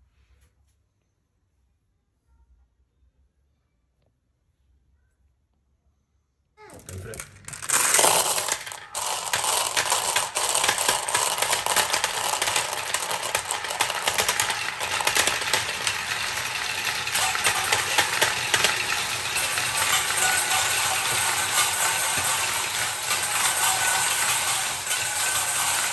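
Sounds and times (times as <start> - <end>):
marbles clattering into plastic funnel: 6.7 - 25.9
marbles rattling down plastic track: 6.8 - 25.9.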